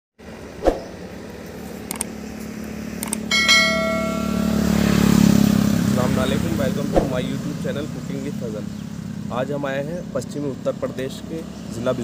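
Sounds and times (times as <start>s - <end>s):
vehicle engine humming: 0.2s - 12.0s
sharp clicks: 1.9s - 2.1s, 3.0s - 3.3s
bell chime: 3.3s - 5.1s.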